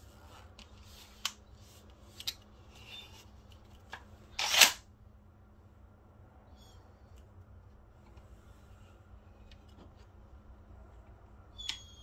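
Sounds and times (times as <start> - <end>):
shotgun clicks: 4.4 - 4.8.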